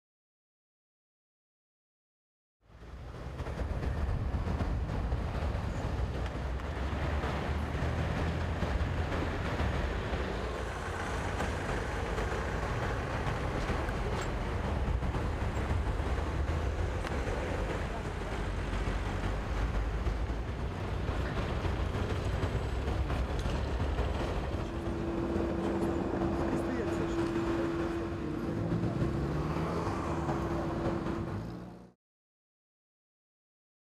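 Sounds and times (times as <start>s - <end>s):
street traffic: 2.6s - 32.0s
idling vehicle engines: 2.8s - 31.9s
steady low tone: 8.6s - 32.0s.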